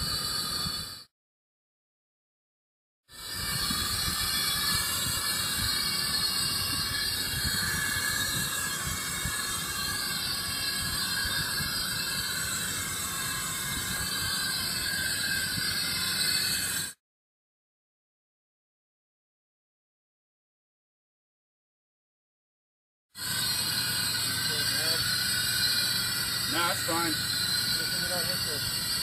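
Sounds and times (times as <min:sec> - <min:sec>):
compressed gas hissing through hose: 0:03.1 - 0:17.0, 0:23.2 - 0:29.0.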